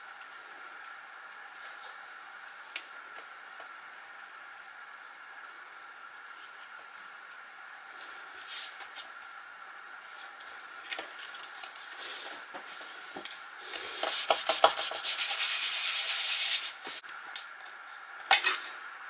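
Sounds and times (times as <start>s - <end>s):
hands rubbing across cardstock: 11.7s - 17.0s.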